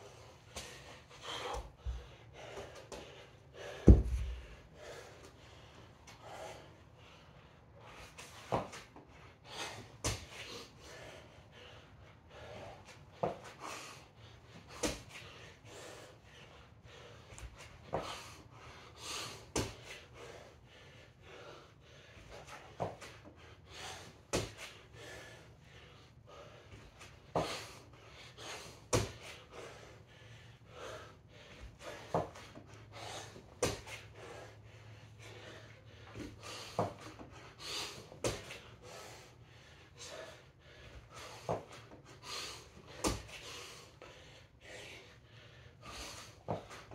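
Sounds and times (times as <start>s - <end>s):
man breathing hard: 0.0s - 46.9s
thuds on rubber floor mat: 3.8s - 4.4s.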